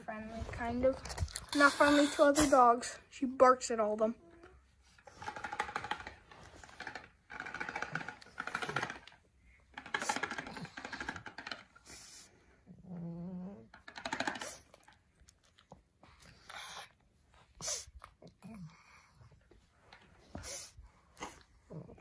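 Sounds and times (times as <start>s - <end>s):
dog breathing noisily: 1.5s - 3.0s, 9.7s - 12.8s, 16.0s - 22.0s.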